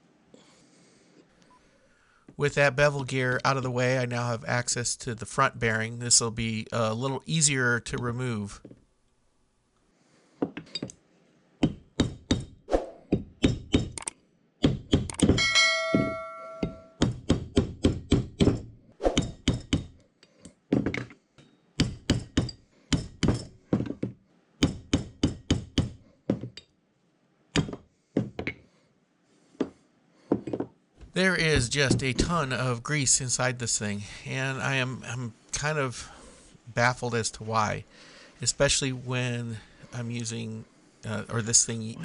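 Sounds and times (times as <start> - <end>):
brass hammer striking metal drift: 15.4 - 17.0
metallic ringing tone: 15.4 - 17.0.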